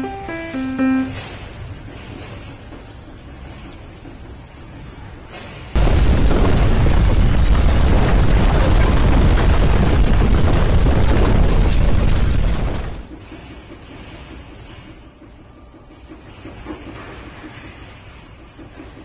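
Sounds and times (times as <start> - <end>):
crackles: 5.3 - 13.2.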